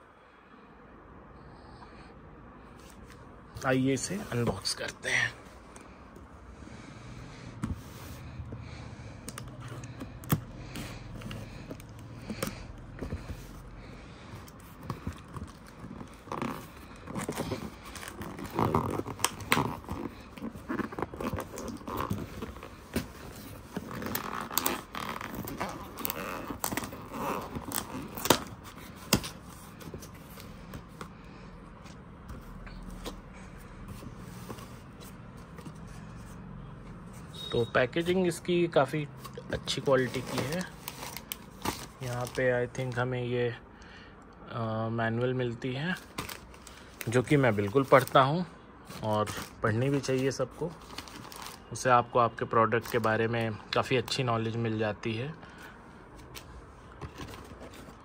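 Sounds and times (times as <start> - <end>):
cardboard box being opened: 14.5 - 30.5.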